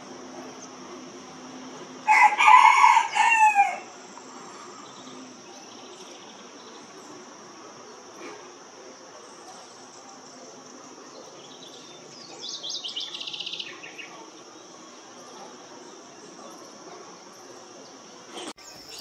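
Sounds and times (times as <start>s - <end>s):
high insect drone: 0.0s - 19.0s
rooster crowing: 2.0s - 4.0s.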